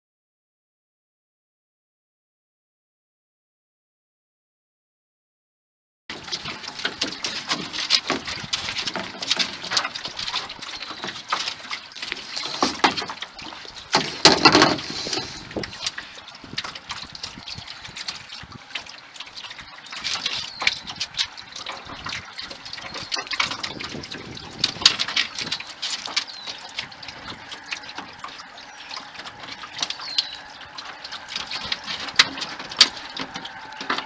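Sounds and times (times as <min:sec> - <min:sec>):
water lapping against boat hull: 0:06.1 - 0:34.0.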